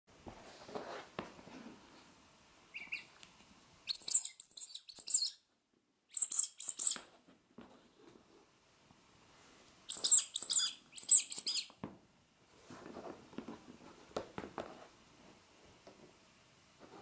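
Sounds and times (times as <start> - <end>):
rubber squeaky toys squeaking: 2.7 - 3.1, 3.9 - 5.4, 6.1 - 7.1, 9.9 - 11.8
faint knocks of handling toys: 12.7 - 14.9.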